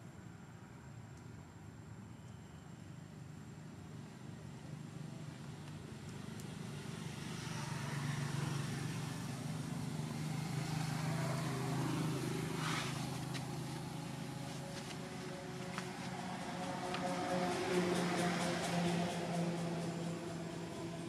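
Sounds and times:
low engine drone: 0:09.8 - 0:21.0.

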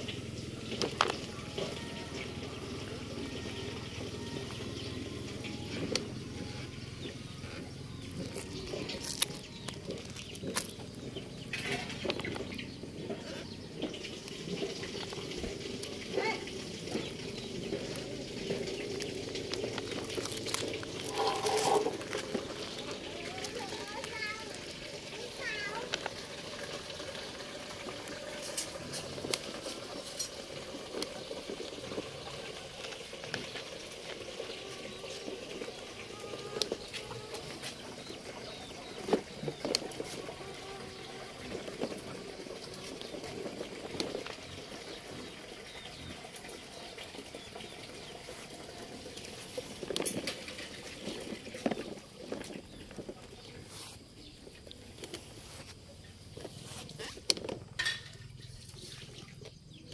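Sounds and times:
toy truck wheels crunching gravel: 0:00.2 - 0:59.9
small stones clicking: 0:08.1 - 0:11.1, 0:17.0 - 0:24.6.

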